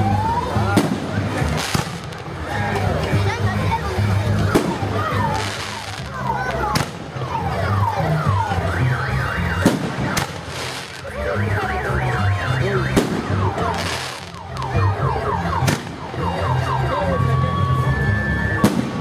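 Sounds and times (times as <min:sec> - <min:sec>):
firework bangs: 0:00.7 - 0:02.4, 0:04.5 - 0:07.1, 0:09.6 - 0:11.1, 0:12.9 - 0:14.6, 0:15.6 - 0:16.0, 0:18.6 - 0:19.0
car alarm whooping and warbling: 0:07.3 - 0:18.7.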